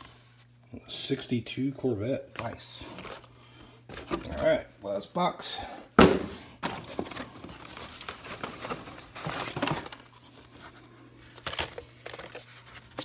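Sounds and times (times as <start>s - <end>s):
plastic packaging crinkling: 6.6s - 10.7s.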